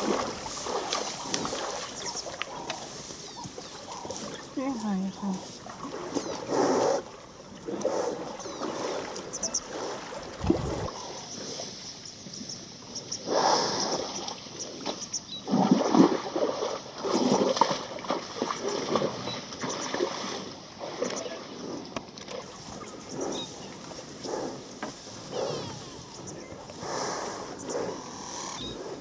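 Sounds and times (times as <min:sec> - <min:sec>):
water sloshing and splashing: 0:00.0 - 0:12.8, 0:13.9 - 0:24.2.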